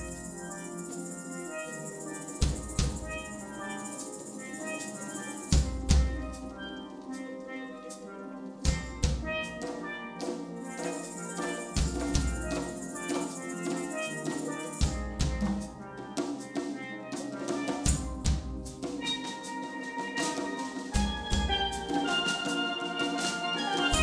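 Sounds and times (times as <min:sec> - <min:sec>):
cymbal wash: 0:00.0 - 0:06.5
steel pans playing melody: 0:00.0 - 0:24.0.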